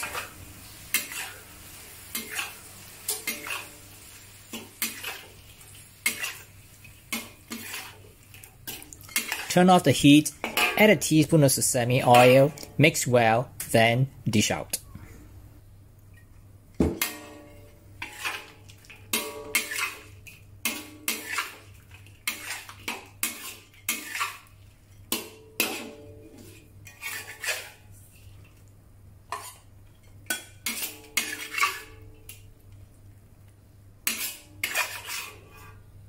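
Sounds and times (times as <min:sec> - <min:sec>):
metal spatula scraping a wok: 0:00.0 - 0:11.0, 0:17.0 - 0:28.2, 0:29.3 - 0:29.7, 0:30.3 - 0:32.2, 0:34.0 - 0:35.9.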